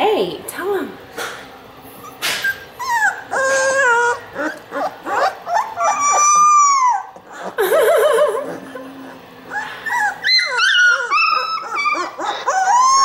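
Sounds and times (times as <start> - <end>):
puppy yelping and howling: 2.0 - 7.6, 9.5 - 13.0.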